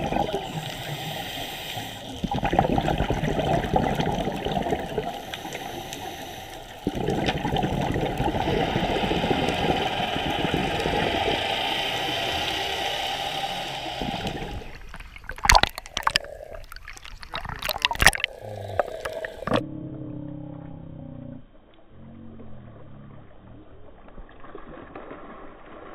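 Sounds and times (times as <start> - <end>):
underwater bubbling: 0.0 - 25.9
knocks and splashes: 14.9 - 19.6.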